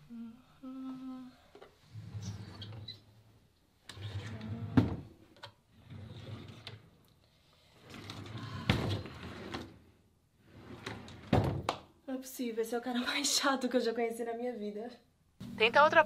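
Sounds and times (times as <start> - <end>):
drawers sliding and rummaging: 5.8 - 6.9, 7.8 - 9.8, 10.4 - 11.7.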